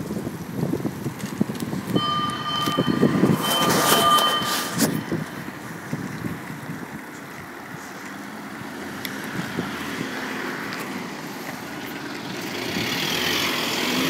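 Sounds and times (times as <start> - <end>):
fire engine running: 0.0 - 12.9
tyres hissing on wet road: 4.7 - 14.0.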